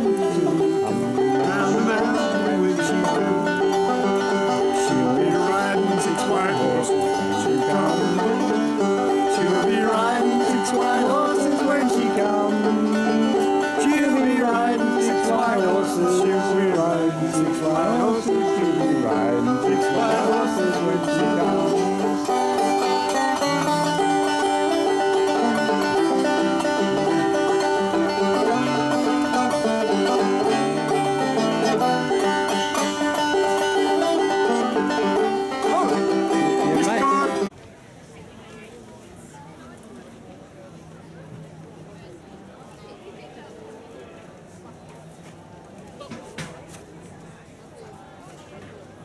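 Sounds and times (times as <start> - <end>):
banjo playing bluegrass tune: 0.0 - 37.5.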